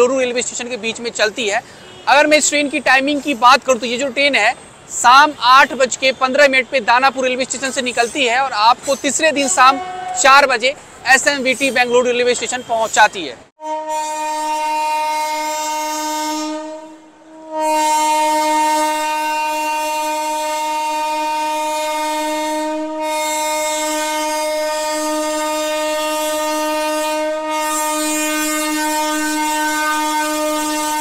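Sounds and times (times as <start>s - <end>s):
locomotive air horn: 1.7s - 2.4s, 9.4s - 10.5s, 13.6s - 31.0s.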